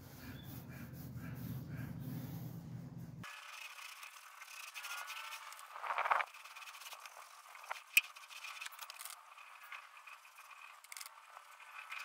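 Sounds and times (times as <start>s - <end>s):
paint roller scraping rustle: 3.2s - 12.0s.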